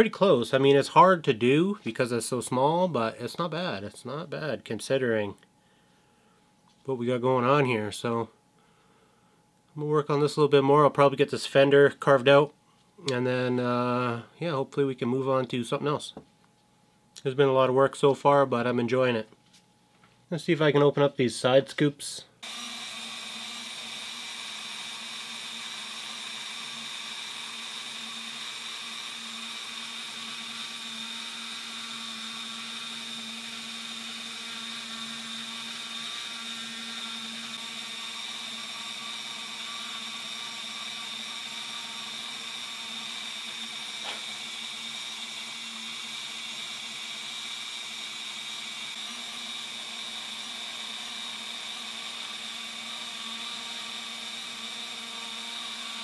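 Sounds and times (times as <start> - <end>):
rotary tool motor whine: 22.4 - 56.0.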